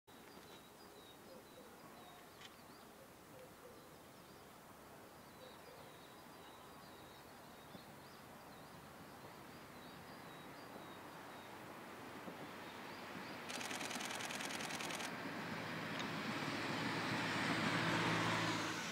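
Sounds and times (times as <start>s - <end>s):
small birds chirping: 0.1s - 11.6s, 12.4s - 15.1s
rush with fast rattle: 13.5s - 15.1s.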